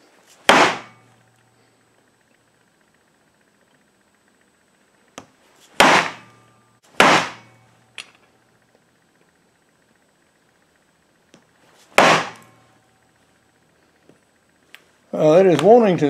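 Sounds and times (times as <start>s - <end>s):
mallet striking knife blade: 0.4s - 1.2s, 5.8s - 7.7s.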